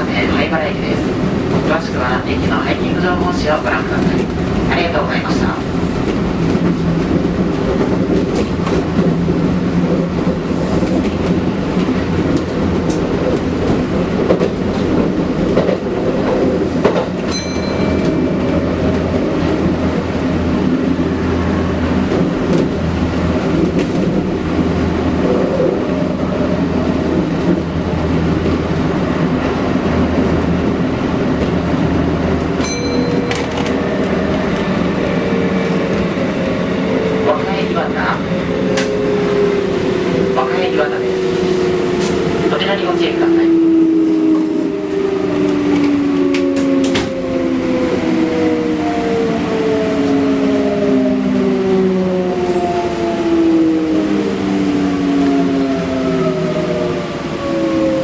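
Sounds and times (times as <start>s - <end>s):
train wheels rumbling on rail: 0.0s - 58.0s
wheels clacking over rail joints: 29.4s - 37.2s.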